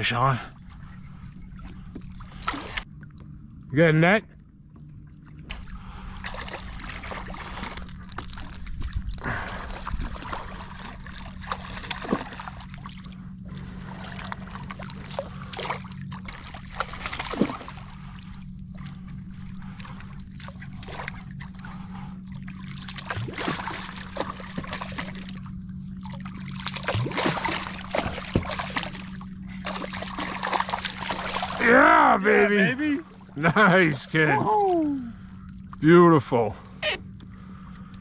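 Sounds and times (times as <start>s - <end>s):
steady low hum: 0.0s - 38.0s
water splashing and sloshing: 0.0s - 38.0s
fish thrashing at surface: 22.8s - 25.4s, 26.1s - 31.8s.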